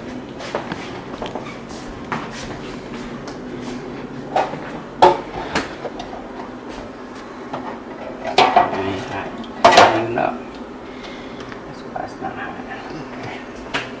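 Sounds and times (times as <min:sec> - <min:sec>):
kitchen items knocking and clattering: 0:07.6 - 0:09.0, 0:09.6 - 0:10.2.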